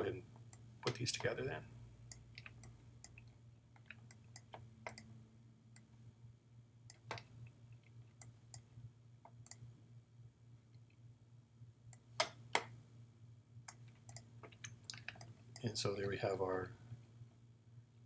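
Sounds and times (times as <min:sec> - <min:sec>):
steady low hum: 0:00.0 - 0:18.0
faint computer mouse clicks: 0:09.3 - 0:09.6, 0:13.7 - 0:15.7.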